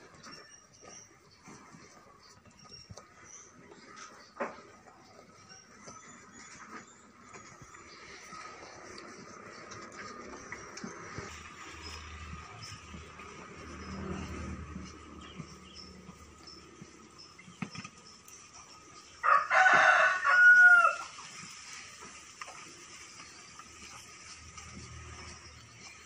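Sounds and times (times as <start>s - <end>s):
rooster crowing: 19.2s - 21.1s.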